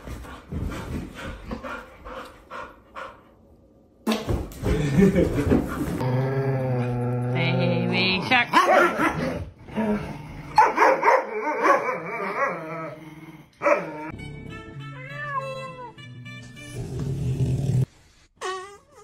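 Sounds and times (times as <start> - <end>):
dog barking: 8.5 - 9.2, 10.6 - 12.5, 13.6 - 14.0
melodic music: 14.1 - 16.7.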